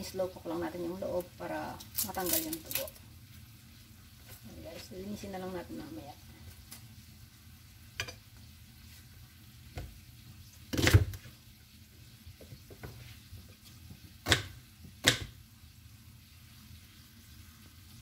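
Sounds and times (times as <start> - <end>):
steak sizzling in a pan: 0.0 - 18.0.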